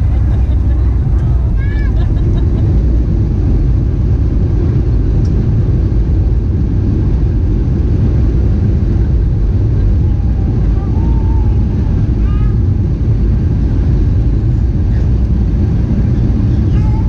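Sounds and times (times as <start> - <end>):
jet engines: 0.0 - 17.0
wheels rumbling on runway: 0.0 - 17.0.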